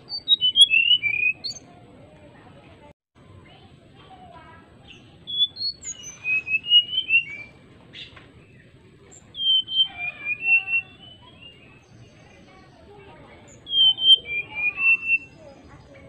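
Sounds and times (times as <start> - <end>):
bird singing fluting whistles: 0.1 - 1.6, 5.3 - 8.1, 9.1 - 11.9, 13.5 - 15.5.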